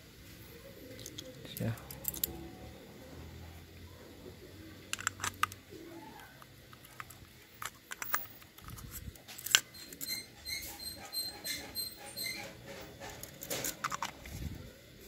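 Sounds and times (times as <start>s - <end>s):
high-pitched squeaks: 9.6s - 13.8s.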